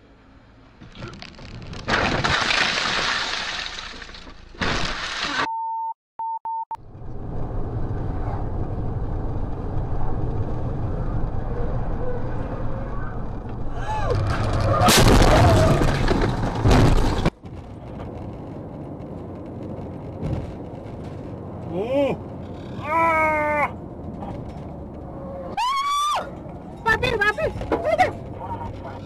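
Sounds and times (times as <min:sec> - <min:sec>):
short beeps: 0:05.5 - 0:06.8
car driving on highway hum: 0:06.8 - 0:14.8, 0:16.2 - 0:29.0.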